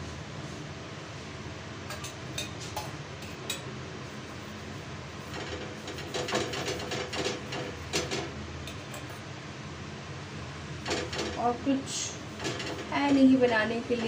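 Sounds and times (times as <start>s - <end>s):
metal bowl and utensils clinking: 1.9s - 3.6s, 5.4s - 9.2s.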